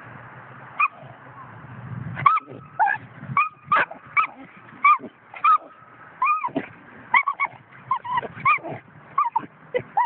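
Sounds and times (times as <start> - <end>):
puppy yelping: 2.2 - 10.0.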